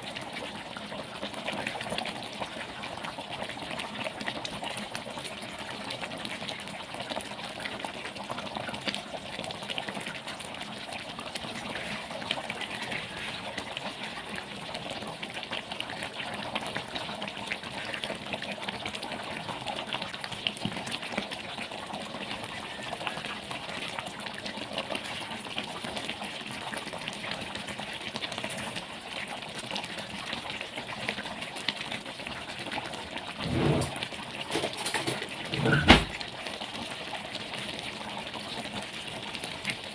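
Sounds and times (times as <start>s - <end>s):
sauce bubbling in a pan: 0.0s - 39.9s
thump: 35.6s - 36.1s.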